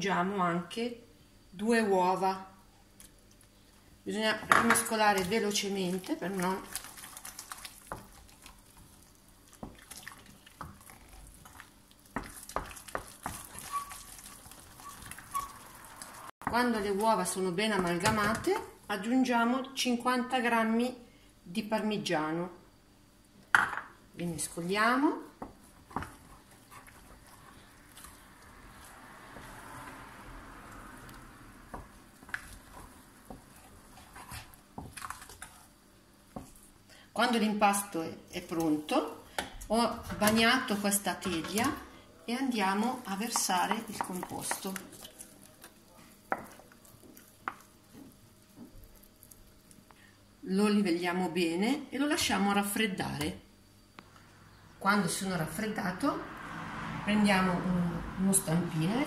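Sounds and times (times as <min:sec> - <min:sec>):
wooden spoon stirring thick food: 0:04.1 - 0:18.8, 0:24.4 - 0:36.8, 0:38.3 - 0:50.1.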